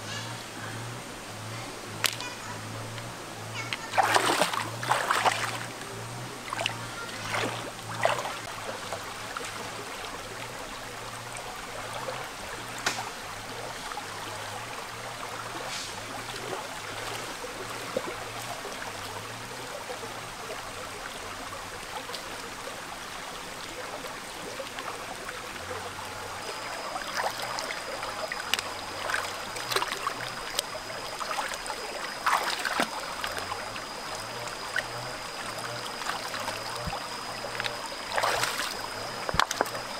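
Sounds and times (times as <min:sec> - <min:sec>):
rocky stream running: 0:00.0 - 0:39.9
splashes in water: 0:03.7 - 0:05.7, 0:06.5 - 0:08.5, 0:26.5 - 0:39.9.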